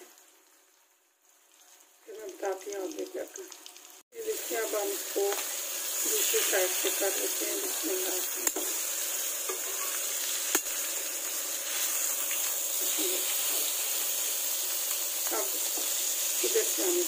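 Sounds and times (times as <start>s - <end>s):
chicken sizzling in a pan: 0.0s - 17.0s
metal tongs clicking on pan: 8.4s - 8.8s.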